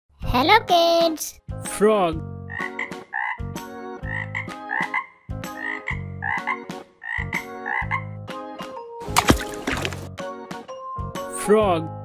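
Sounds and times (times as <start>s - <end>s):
frogs croaking: 2.5s - 8.2s.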